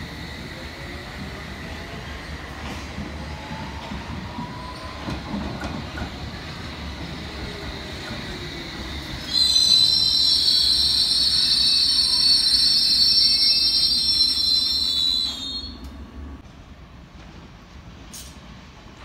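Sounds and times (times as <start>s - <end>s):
train rumble with falling whine: 0.0s - 19.0s
high brake squeal: 9.0s - 15.9s.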